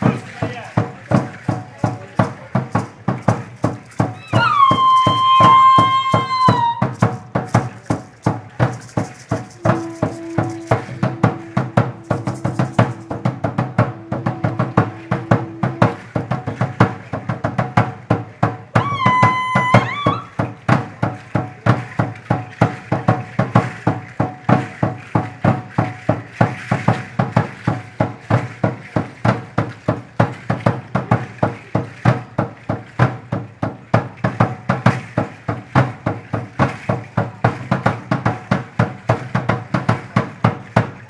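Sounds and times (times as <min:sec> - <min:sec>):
drum struck in steady beat: 0:00.0 - 0:41.0
high tone bending upward: 0:04.2 - 0:06.8.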